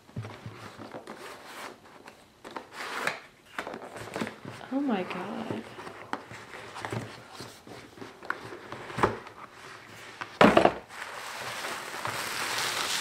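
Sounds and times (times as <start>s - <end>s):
plastic wrapping crinkling: 10.9s - 13.0s.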